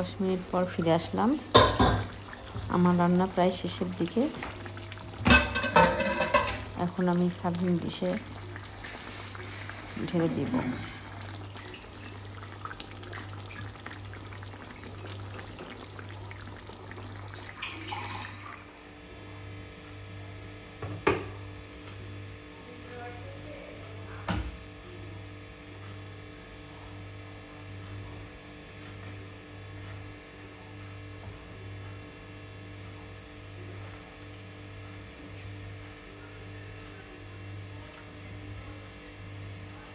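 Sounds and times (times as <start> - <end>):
curry simmering and crackling: 0.0 - 18.9
low steady hum: 0.0 - 39.9.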